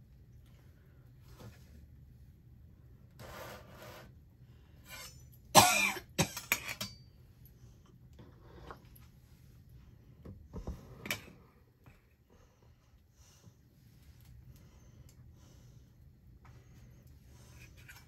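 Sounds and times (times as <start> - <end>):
person coughing: 5.6 - 6.7.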